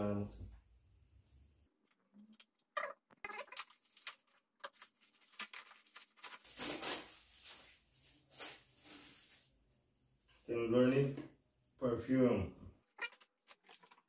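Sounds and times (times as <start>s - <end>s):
wrapping paper tearing and crinkling: 3.2s - 9.5s, 13.0s - 14.0s.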